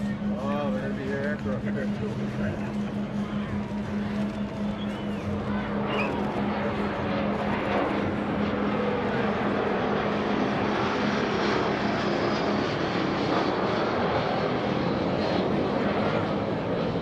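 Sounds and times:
jet roar with turbine whine: 0.0s - 17.0s.

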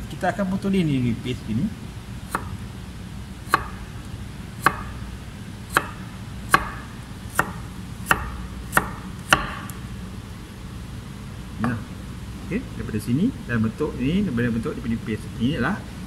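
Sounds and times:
knife chopping on cutting board: 2.3s - 2.5s, 3.5s - 3.8s, 4.6s - 5.0s, 5.7s - 9.8s.

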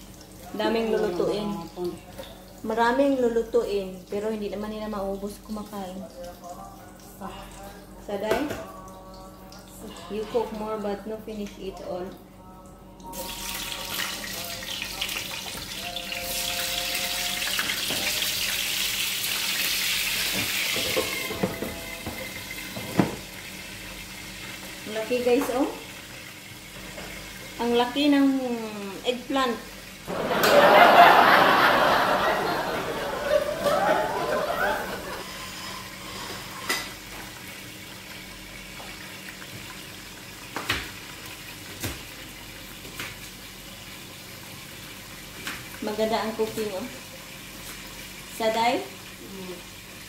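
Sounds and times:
pots hissing on gas stove: 13.1s - 50.0s
pot lid and pans clinking: 20.7s - 21.8s.

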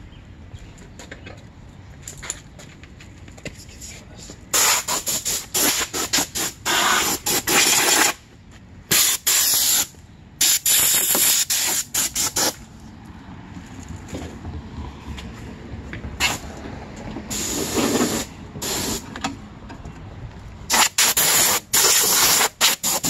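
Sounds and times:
air blowgun hissing blasts: 8.9s - 12.6s, 17.3s - 19.1s.

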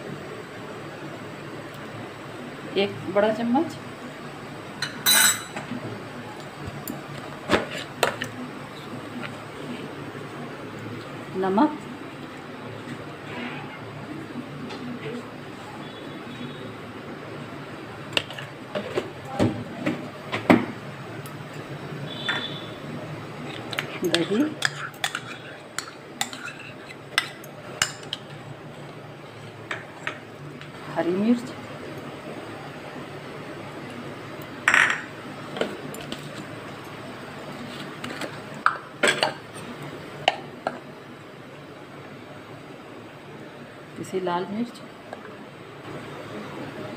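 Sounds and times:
spoon clinking on metal bowl: 4.8s - 5.6s
utensils clinking on bowls: 4.8s - 5.7s, 23.5s - 28.4s.

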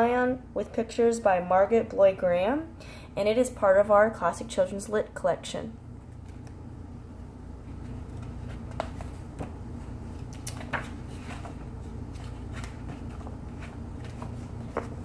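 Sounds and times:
low room hum: 0.0s - 15.0s
book pages turning: 7.7s - 15.0s.

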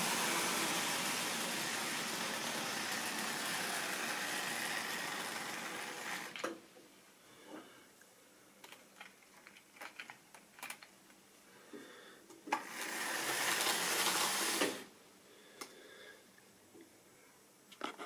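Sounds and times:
model train motor whirring: 0.0s - 6.5s, 12.5s - 14.9s.

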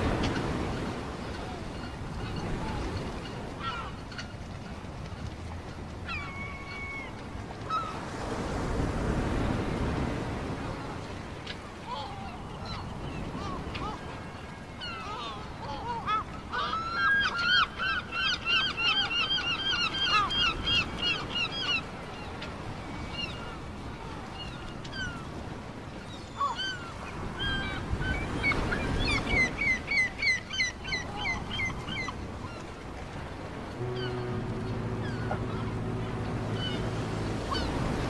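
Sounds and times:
gulls yelping: 11.9s - 22.4s, 33.6s - 38.0s.

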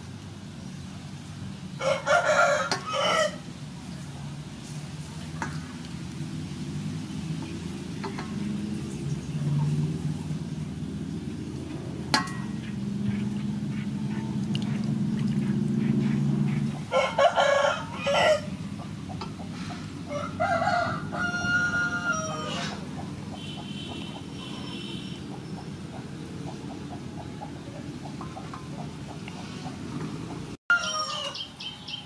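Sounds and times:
rooster squawking and crowing: 1.8s - 3.4s, 16.8s - 18.6s, 19.5s - 23.0s, 30.7s - 31.7s.

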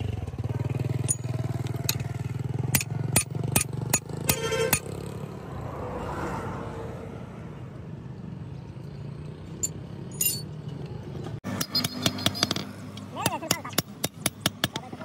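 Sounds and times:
faint metallic clinks: 9.6s - 10.9s.

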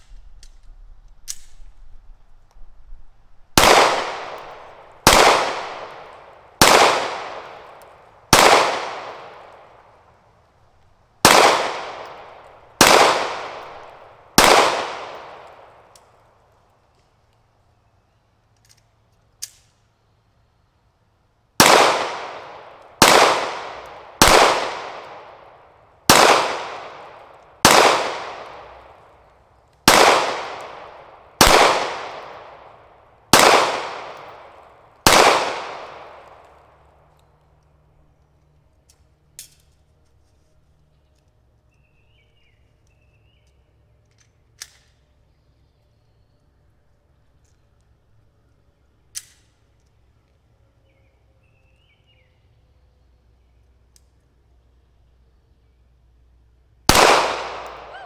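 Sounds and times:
pistol handling click: 0.4s - 1.7s, 18.5s - 19.8s
pistol shots: 3.6s - 9.8s, 11.2s - 15.9s, 21.6s - 29.0s, 29.8s - 36.8s, 56.9s - 58.0s.

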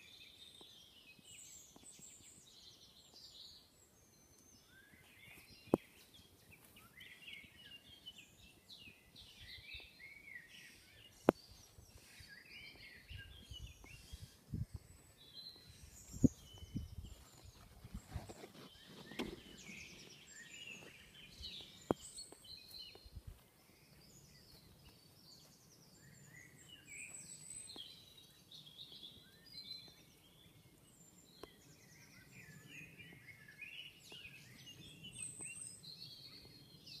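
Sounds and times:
small birds chirping: 0.0s - 37.0s
microphone handling rumble: 16.0s - 20.2s.

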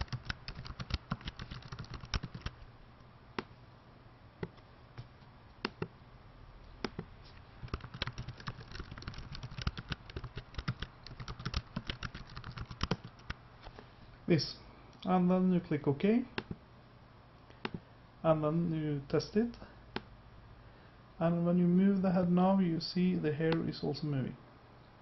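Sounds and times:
typing on computer keyboard: 0.0s - 2.6s, 7.6s - 13.4s.

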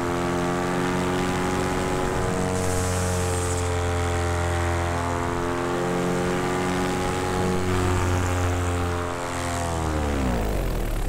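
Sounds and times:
paramotor engine and propeller drone: 0.0s - 11.0s.

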